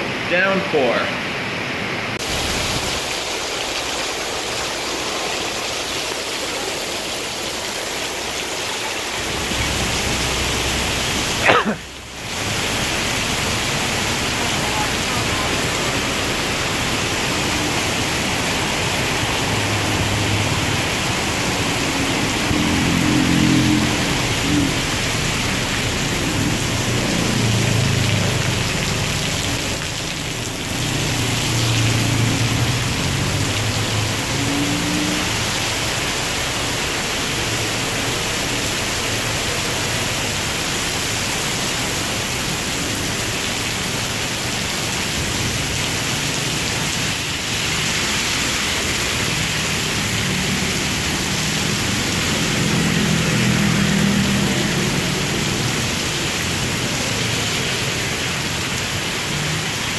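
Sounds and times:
torrential rain on pavement: 0:00.0 - 0:59.9
passing road traffic: 0:09.1 - 0:40.8, 0:44.5 - 0:59.9.

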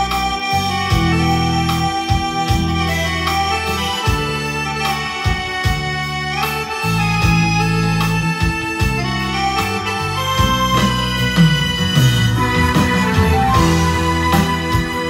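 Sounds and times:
bass line: 0:00.0 - 0:15.0
keyboard lead melody: 0:00.0 - 0:15.0
drum beat: 0:10.4 - 0:15.0.

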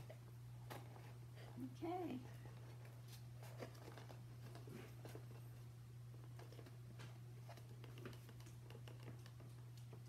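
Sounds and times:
cardboard rustling and tapping: 0:06.3 - 0:10.0.

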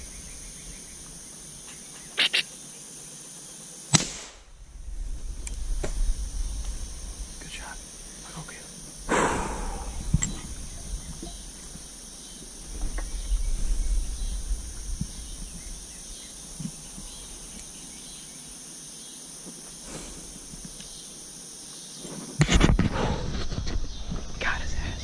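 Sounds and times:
high insect chorus: 0:00.0 - 0:25.0
low rumble on microphone: 0:04.4 - 0:18.0.

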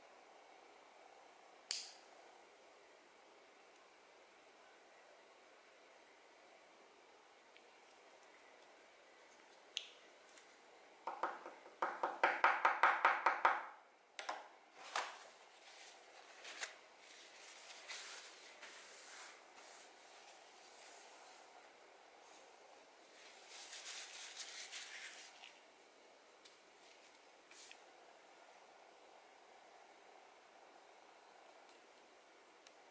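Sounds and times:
hand brushing tabletop: 0:15.2 - 0:21.5, 0:23.1 - 0:25.6, 0:26.8 - 0:27.8.

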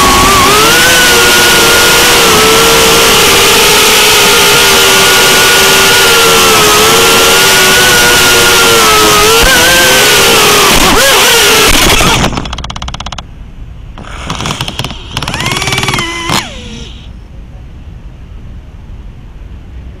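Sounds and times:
quadcopter motor whine: 0:00.0 - 0:12.3, 0:14.0 - 0:17.1
rapid even ticking: 0:09.0 - 0:13.3, 0:14.0 - 0:16.8.

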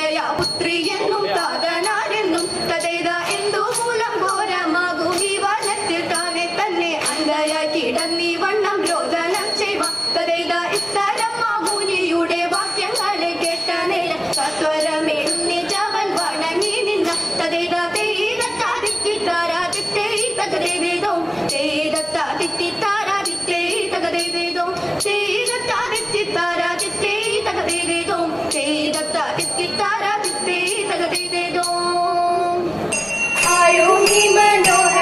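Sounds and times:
women singing: 0:00.0 - 0:32.8, 0:33.4 - 0:35.0.

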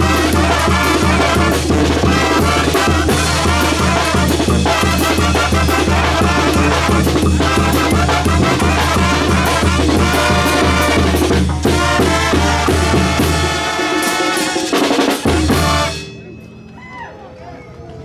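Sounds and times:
sousaphone bass line: 0:00.0 - 0:13.5
bass drum and cymbal: 0:00.0 - 0:16.2
brass band playing: 0:00.0 - 0:16.6.

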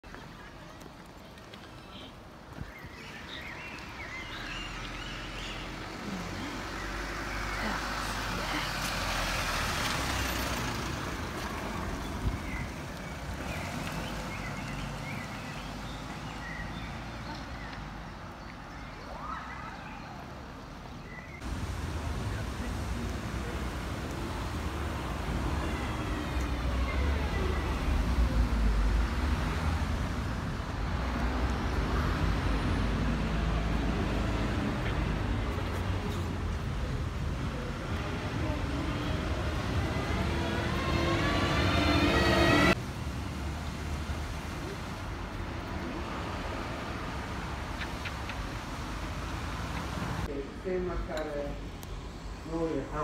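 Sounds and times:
bus engine and road rumble: 0:00.0 - 0:53.0
minibus driving away: 0:04.6 - 0:17.3, 0:21.4 - 0:45.4.

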